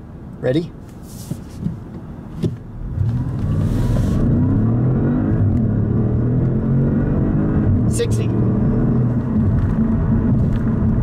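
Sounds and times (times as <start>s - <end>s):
car engine accelerating hard: 2.8s - 11.0s.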